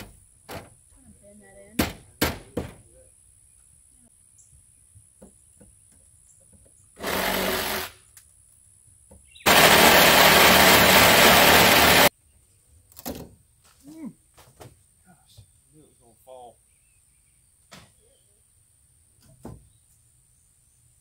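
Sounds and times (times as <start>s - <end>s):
power driver driving screws: 7.0s - 8.0s, 9.5s - 12.1s.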